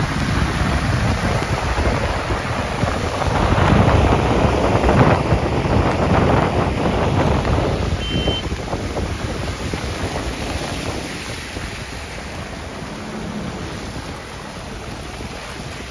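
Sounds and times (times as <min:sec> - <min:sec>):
car road noise on wet streets: 0:00.0 - 0:15.9
wind on microphone: 0:00.0 - 0:15.9
short high beep: 0:08.0 - 0:08.5.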